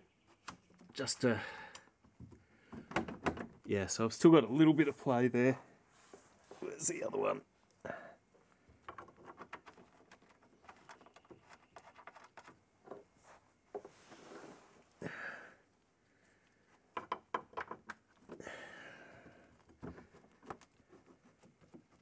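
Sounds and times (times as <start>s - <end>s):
strained breaths: 1.2s - 2.9s, 14.0s - 16.8s, 18.3s - 20.0s.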